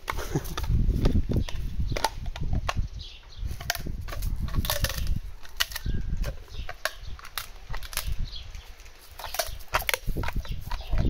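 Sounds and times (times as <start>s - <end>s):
dog crunching a chew: 3.5s - 11.0s.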